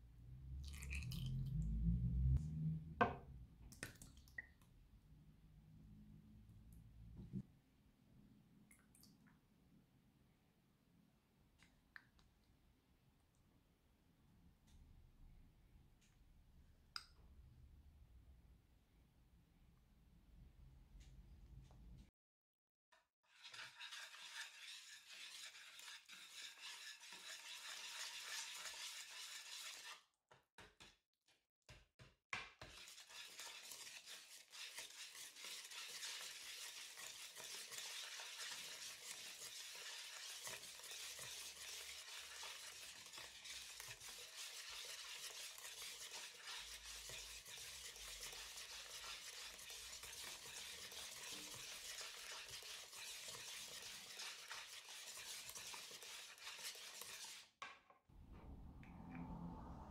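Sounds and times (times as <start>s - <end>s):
whisk swishing and scraping bowl: 23.2s - 30.1s, 32.5s - 57.6s.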